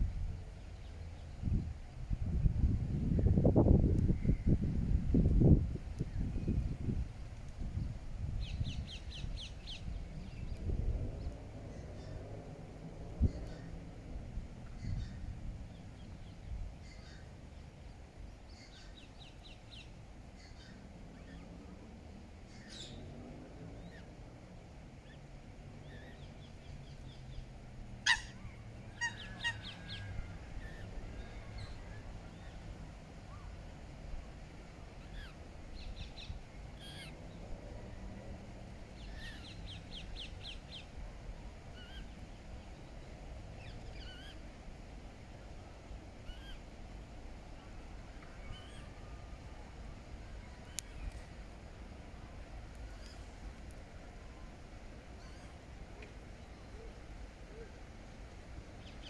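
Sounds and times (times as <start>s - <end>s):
low background rumble: 0.0s - 59.0s
coots calling: 28.0s - 31.5s.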